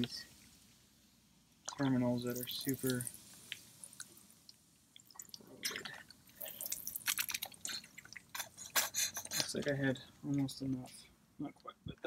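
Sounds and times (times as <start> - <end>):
liquid splashing and dribbling: 1.6 - 9.6
small drips: 1.6 - 11.0.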